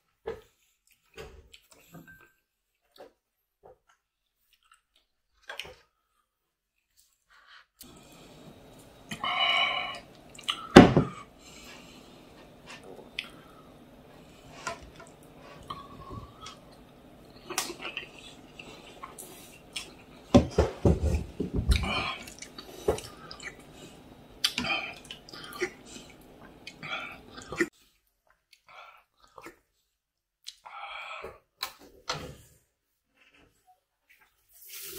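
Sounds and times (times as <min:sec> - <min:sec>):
person chewing and lip-smacking: 0:10.0 - 0:10.7, 0:15.1 - 0:20.2, 0:21.7 - 0:23.7, 0:24.4 - 0:27.7, 0:30.4 - 0:30.7.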